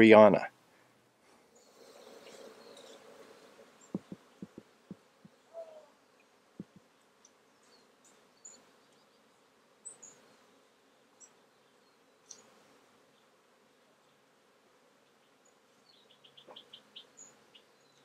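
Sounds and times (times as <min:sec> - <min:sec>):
bees buzzing: 0:01.5 - 0:05.5
low thumps: 0:03.9 - 0:05.4, 0:06.6 - 0:06.8.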